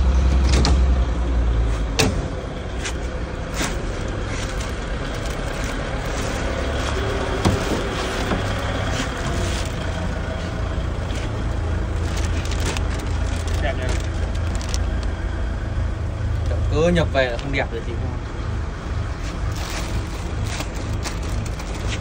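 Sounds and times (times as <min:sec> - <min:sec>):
low engine rumble: 0:00.0 - 0:22.0.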